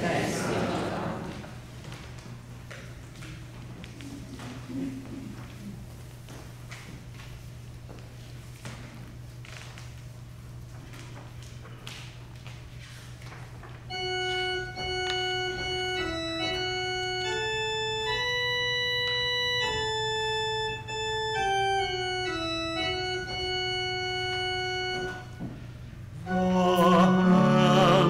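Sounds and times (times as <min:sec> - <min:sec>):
organ playing slow melody: 0:13.9 - 0:28.0.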